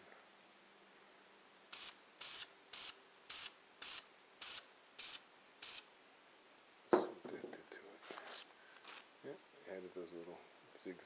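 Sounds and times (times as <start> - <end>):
spray paint can hissing: 1.7 - 5.9.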